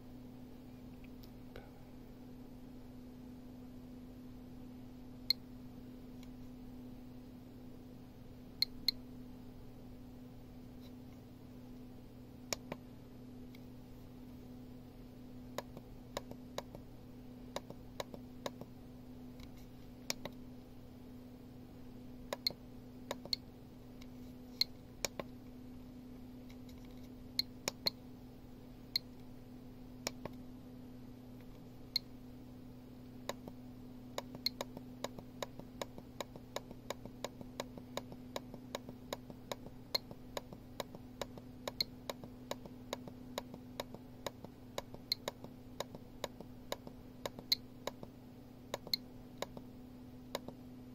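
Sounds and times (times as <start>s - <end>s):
geiger counter clicking: 22.3s - 23.4s, 33.3s - 48.1s, 48.7s - 49.6s, 50.3s - 50.6s.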